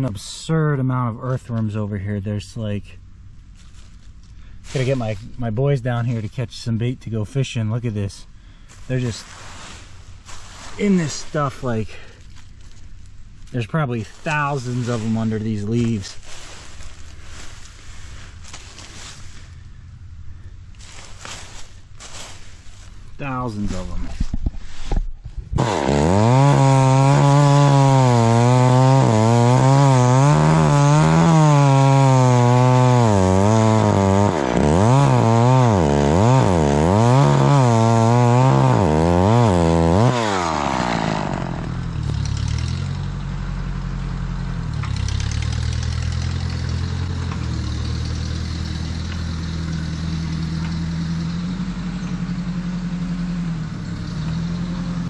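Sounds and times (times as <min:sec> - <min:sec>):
chainsaw engine running: 0:25.6 - 0:55.0.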